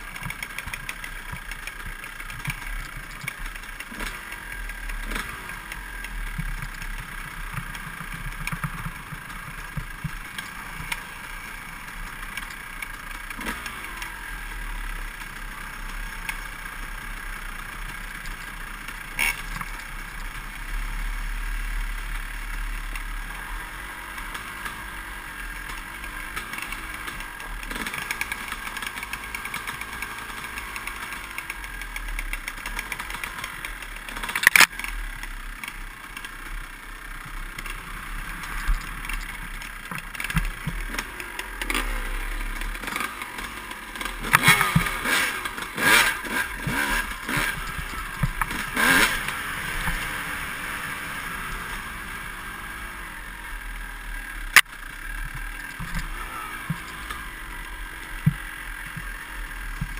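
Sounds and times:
bike rattles and knocks: 0.0 - 14.2, 25.7 - 36.5, 37.2 - 50.6, 54.5 - 59.9
dirt bike engine running: 0.0 - 59.9.

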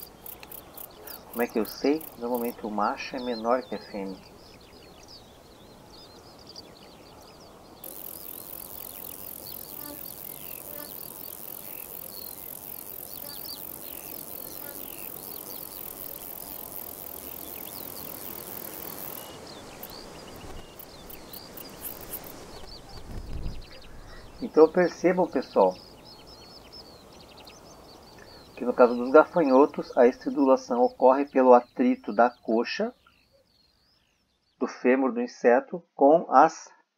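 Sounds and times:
grasshopper stridulating: 0.0 - 5.4, 7.8 - 31.3
birds chirping faintly: 0.0 - 36.5.

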